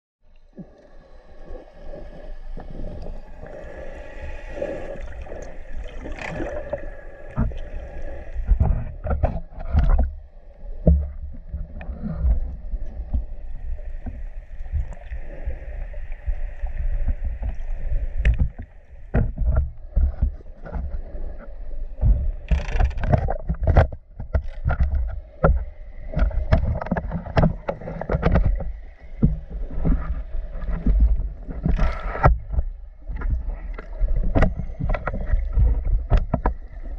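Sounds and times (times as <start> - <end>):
underwater bubbling: 0.3 - 36.9
water sloshing against camera: 0.4 - 36.9
low underwater thumps: 8.3 - 10.2, 10.8 - 15.0, 18.2 - 21.0, 22.0 - 36.9.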